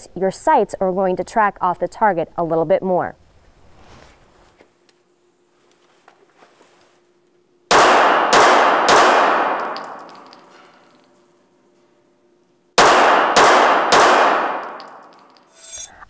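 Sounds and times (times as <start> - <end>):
pistol shots echoing indoors: 7.7 - 10.7, 12.8 - 15.1.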